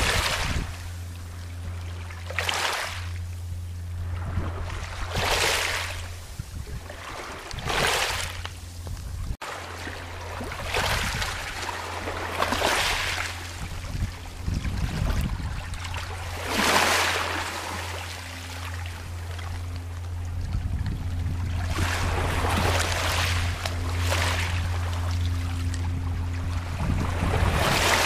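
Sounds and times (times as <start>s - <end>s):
steady low hum: 0.0s - 28.0s
waves washing over pebbles: 6.9s - 8.5s, 9.4s - 14.0s, 14.6s - 18.7s, 21.4s - 25.3s, 26.8s - 28.0s.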